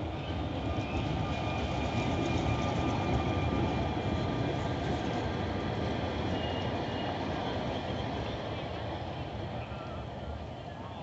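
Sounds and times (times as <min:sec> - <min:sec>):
tram wheels rumbling on rails: 0:00.0 - 0:11.0.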